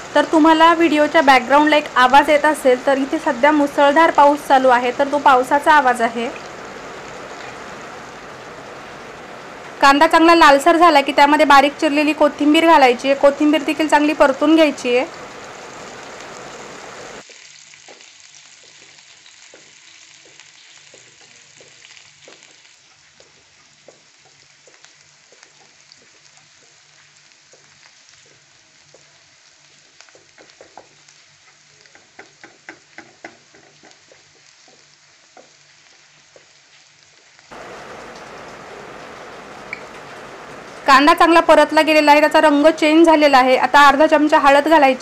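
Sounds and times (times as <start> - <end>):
onions frying in oil: 0.0 - 45.0
wooden spatula tapping a pan: 17.3 - 22.6, 23.2 - 26.8, 27.4 - 29.1, 29.9 - 35.7.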